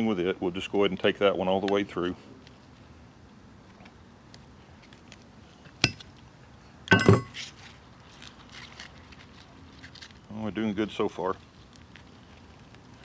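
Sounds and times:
metal clinking clatter: 6.9s - 7.4s
metal knife knocking on hard surface: 6.9s - 7.4s.

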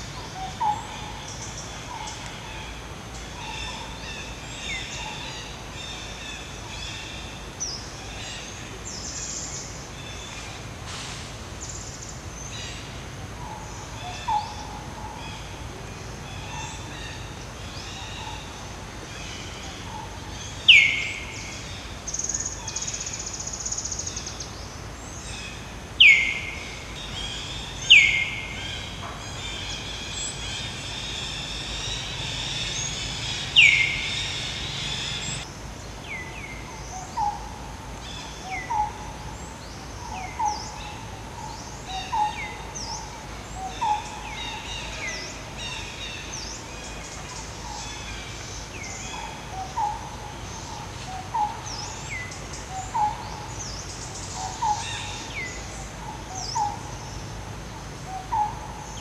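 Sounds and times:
chorus of bird chirps: 26.0s - 35.5s, 38.0s - 57.4s.

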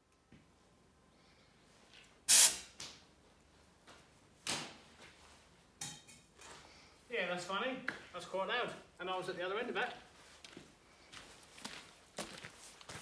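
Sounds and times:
compressed air blasts: 2.3s - 2.8s.

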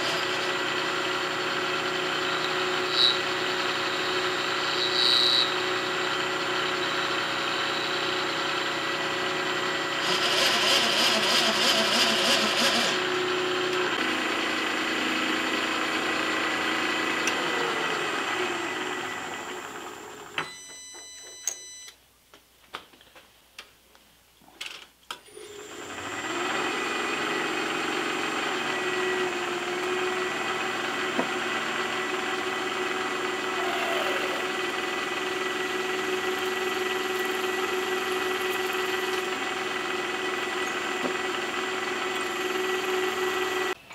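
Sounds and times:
milling machine running: 0.0s - 20.3s, 25.3s - 43.8s
end mill cutting metal: 9.4s - 15.1s, 25.3s - 43.8s.

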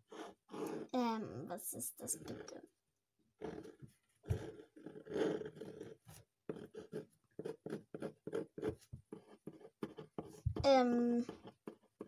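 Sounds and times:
ballpoint pen scratching on paper: 0.0s - 0.9s, 3.4s - 12.0s.

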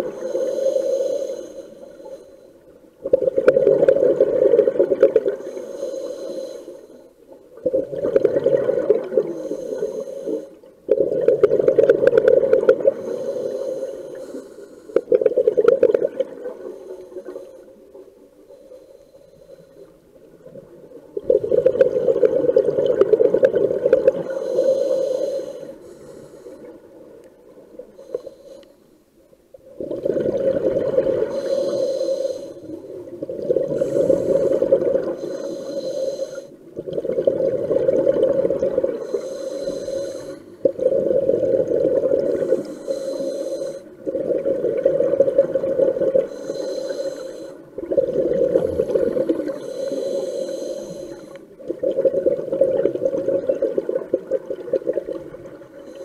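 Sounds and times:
diver exhaling bubbles underwater: 3.0s - 5.4s, 7.6s - 9.4s, 10.9s - 13.1s, 21.2s - 24.4s, 29.7s - 31.5s, 36.8s - 39.2s, 40.6s - 42.6s, 44.0s - 46.3s, 47.8s - 49.6s, 51.6s - 55.6s.

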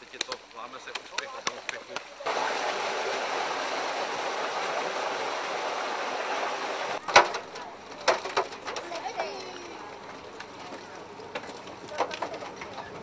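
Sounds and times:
water splashing with thrashing fish: 1.2s - 7.1s.

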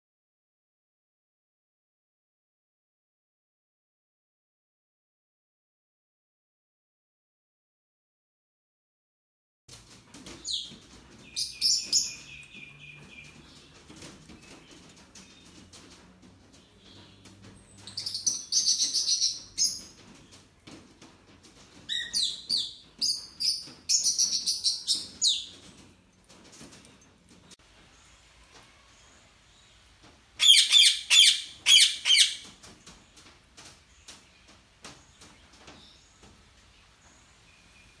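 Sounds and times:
parrot squawking: 30.4s - 32.4s.

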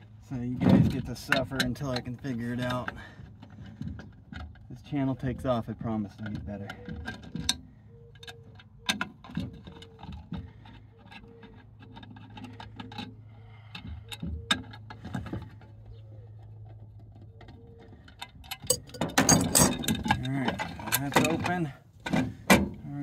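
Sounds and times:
metal housing clanking: 18.4s - 22.8s.

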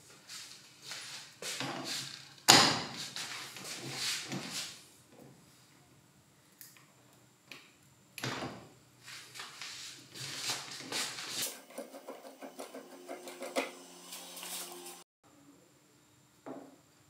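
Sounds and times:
metal scraping: 10.3s - 15.0s.

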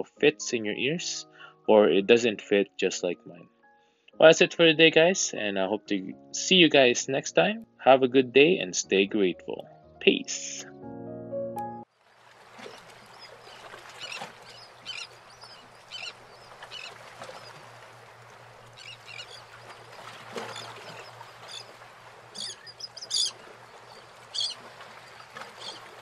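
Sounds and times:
steady outdoor hiss: 12.0s - 26.0s
birds calling: 12.5s - 26.0s.

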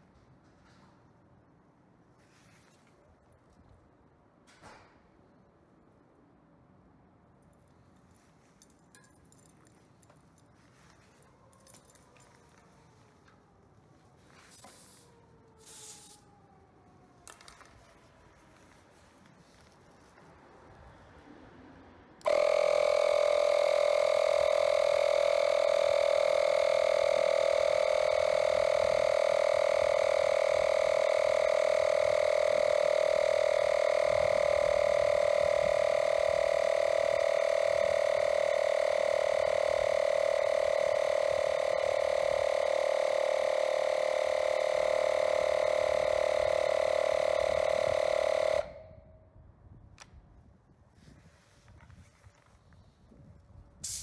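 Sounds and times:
inflator compressor buzzing: 22.2s - 49.0s.

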